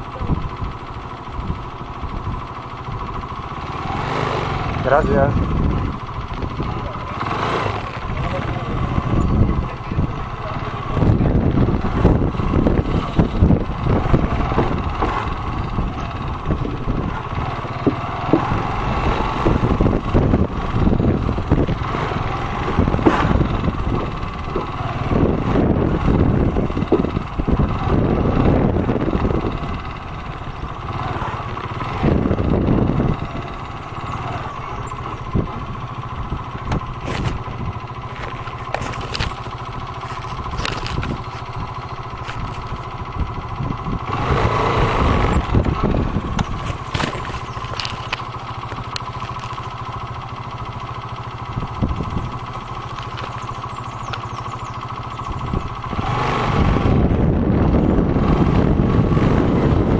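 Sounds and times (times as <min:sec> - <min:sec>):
motorcycle engine running: 0:00.0 - 0:59.9
wooden planks knocking under tyres: 0:36.7 - 0:41.6, 0:46.3 - 0:49.8.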